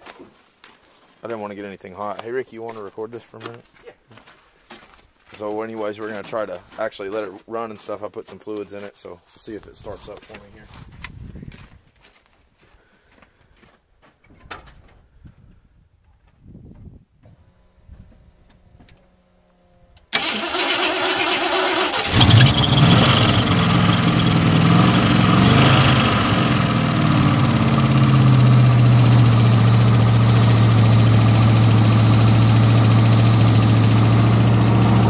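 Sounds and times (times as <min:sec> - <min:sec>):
starter motor cranking: 0:20.1 - 0:29.9
engine idling: 0:20.2 - 0:35.0.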